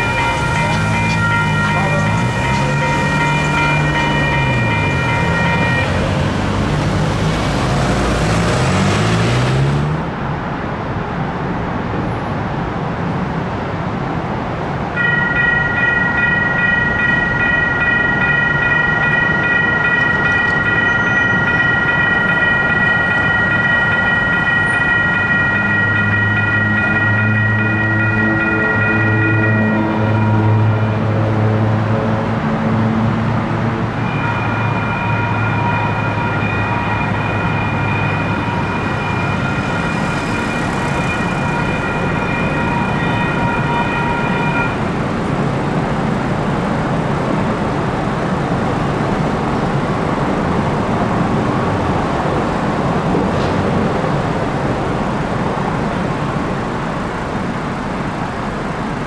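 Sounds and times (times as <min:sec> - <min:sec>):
crossing warning bell ringing: 0:00.0 - 0:08.8, 0:15.0 - 0:32.1, 0:33.5 - 0:46.6
train rumbling past: 0:00.0 - 0:10.4, 0:14.7 - 0:59.0.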